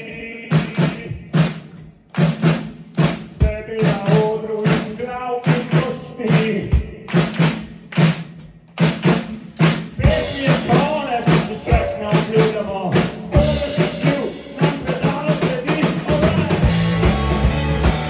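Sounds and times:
drum kit hits: 0.0 - 18.0
rock band playing: 9.9 - 18.0.

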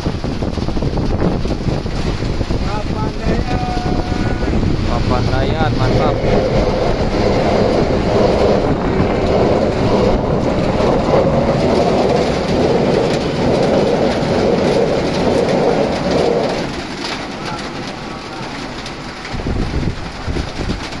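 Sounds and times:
heavy rain hissing: 0.0 - 21.0
train rumbling over rails: 0.0 - 21.0.

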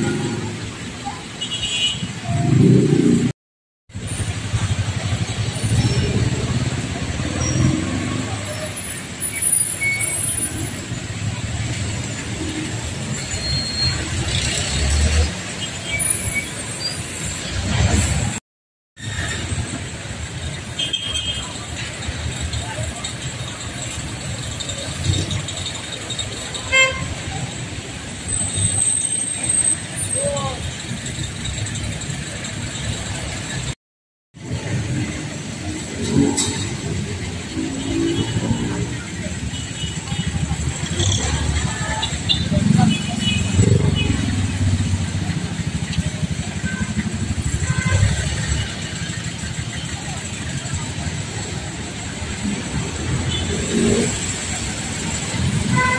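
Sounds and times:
traffic driving past: 2.0 - 3.3, 3.9 - 18.4, 34.4 - 55.9
vehicle horn toot: 26.7 - 27.2, 55.7 - 55.9.

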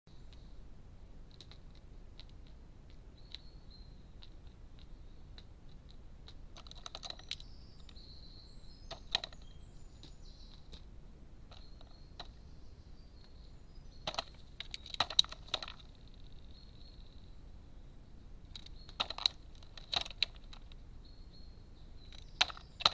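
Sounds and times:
crow pecking at nut shells: 1.2 - 8.0, 8.9 - 10.9, 11.5 - 12.4, 13.2 - 16.6, 18.5 - 20.8, 22.0 - 22.9.

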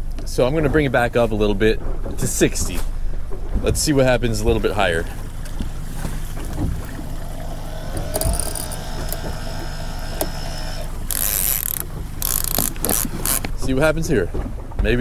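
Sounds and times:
outboard motor hum: 0.9 - 14.6
electric winch motor whine: 6.8 - 13.5.

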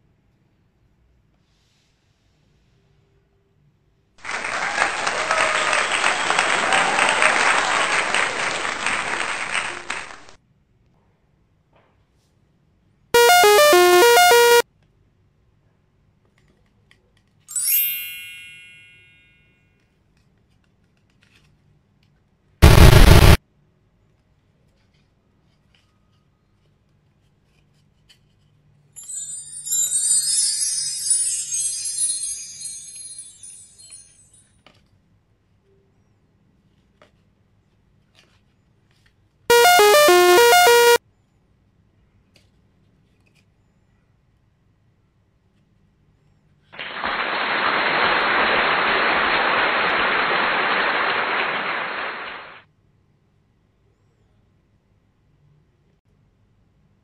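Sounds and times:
harsh burst of noise: 13.2 - 14.6, 22.6 - 23.4, 39.5 - 41.0, 46.8 - 52.6
synthesized electronic jingle: 13.2 - 14.6, 22.6 - 23.4, 39.5 - 41.0
bell-like chime: 17.5 - 19.6, 29.0 - 34.4.

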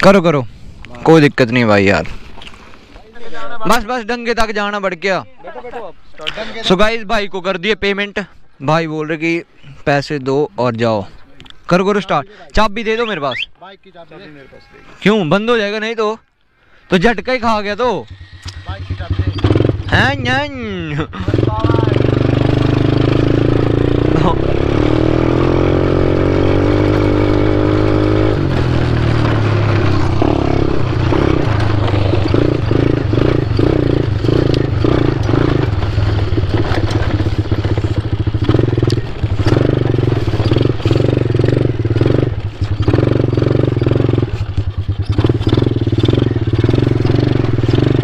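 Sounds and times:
quad bike engine revving: 17.8 - 48.0.

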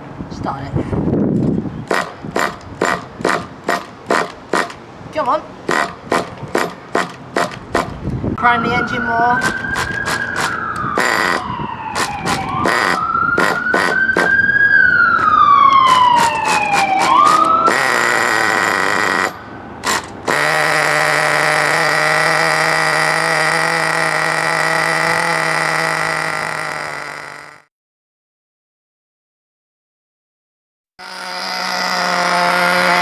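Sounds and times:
model engine sputtering and popping: 19.9 - 27.6, 31.0 - 33.0.

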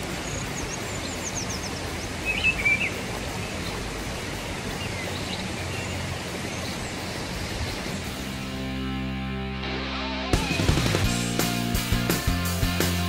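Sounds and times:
songbird chirping: 0.0 - 9.1.

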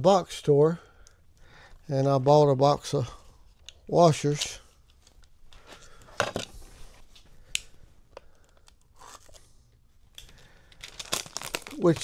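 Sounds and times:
plastic wrapping crinkling: 10.6 - 12.0.

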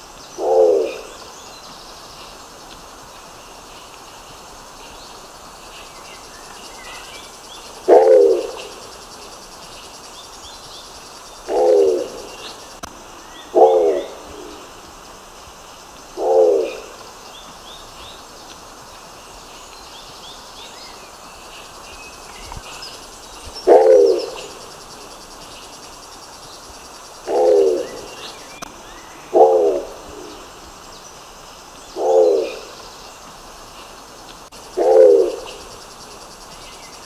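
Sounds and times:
pigeon low calls: 7.8 - 8.8, 11.4 - 12.9, 23.6 - 24.6, 27.2 - 28.7, 34.8 - 35.7.

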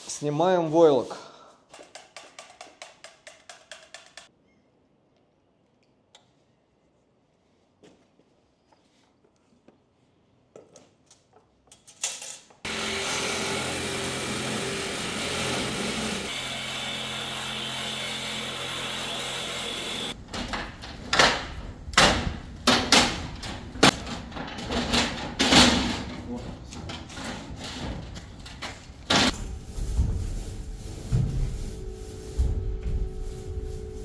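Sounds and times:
power tool running: 12.7 - 20.2.

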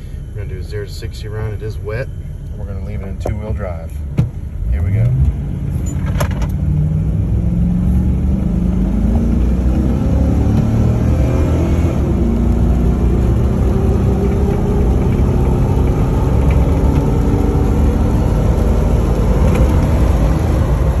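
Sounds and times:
truck engine accelerating hard: 4.7 - 21.0.

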